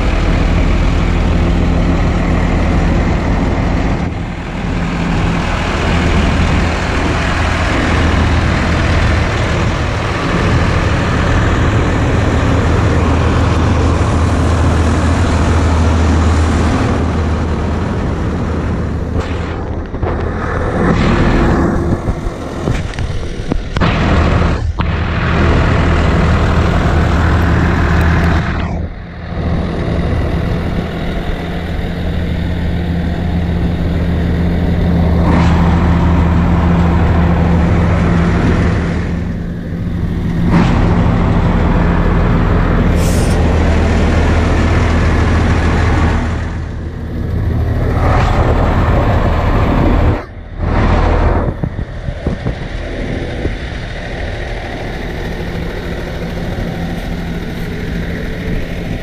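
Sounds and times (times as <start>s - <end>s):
diesel garbage truck idling: 0.0s - 59.0s
rushing noise: 0.0s - 59.0s.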